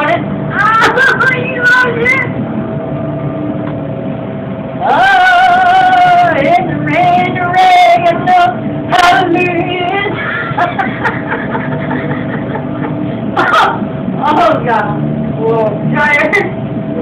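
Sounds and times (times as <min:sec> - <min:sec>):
faint steady hum: 0:00.0 - 0:17.0
laughter: 0:10.1 - 0:13.8.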